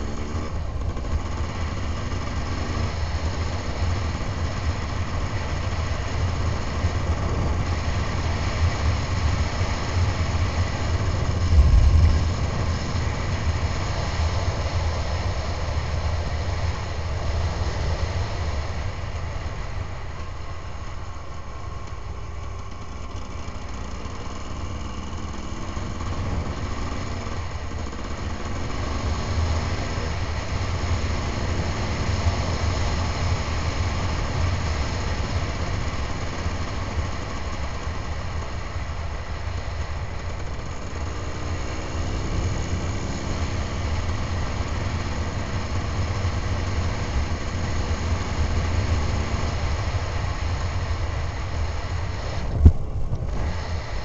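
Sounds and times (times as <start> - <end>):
motorcycle engine running: 0.0 - 54.0
wind rush on microphone: 2.9 - 20.2, 43.3 - 54.0.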